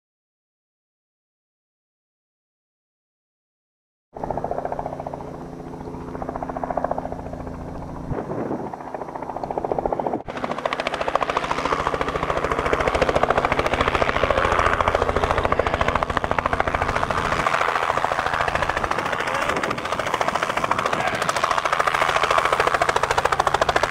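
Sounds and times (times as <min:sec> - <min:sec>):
helicopter engine and rotor chop: 0:04.2 - 0:23.9.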